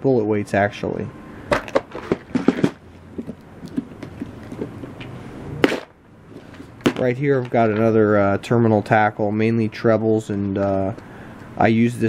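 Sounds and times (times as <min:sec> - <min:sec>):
plastic box clicks and knocks: 0:01.5 - 0:05.9, 0:06.5 - 0:07.6.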